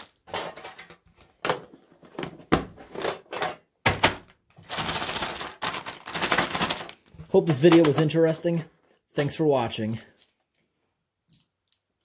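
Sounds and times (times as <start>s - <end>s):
wrapped candies rattling and crinkling: 0.0s - 0.8s, 3.9s - 8.4s.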